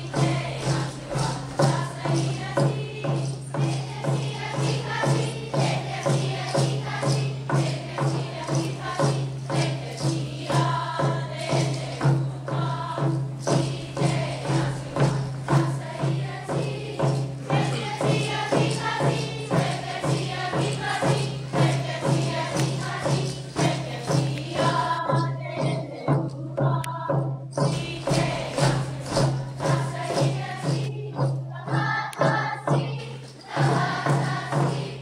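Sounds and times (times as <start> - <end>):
group singing together: 0.0 - 35.0
steady drum beat: 0.0 - 35.0.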